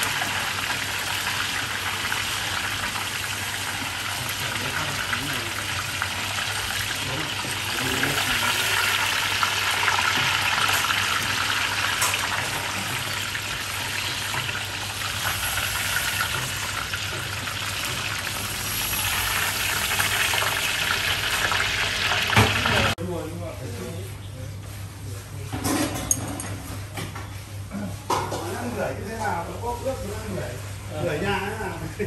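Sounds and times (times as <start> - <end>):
oil sizzling and bubbling: 0.0 - 23.0.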